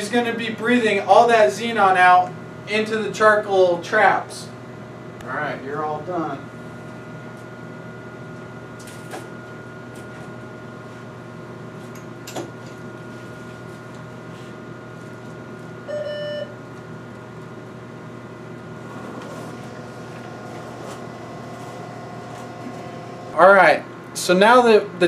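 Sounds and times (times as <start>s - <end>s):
electrical equipment hum: 0.0s - 25.0s.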